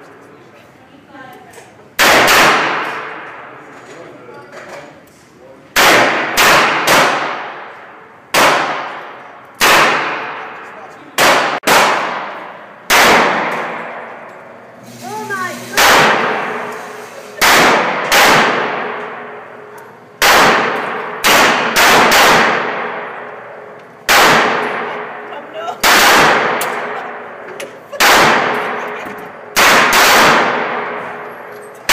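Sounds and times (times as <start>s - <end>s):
pistol shots with echo: 2.0s - 3.5s, 5.8s - 14.5s, 15.8s - 16.7s, 17.4s - 19.6s, 20.2s - 28.9s, 29.5s - 31.9s.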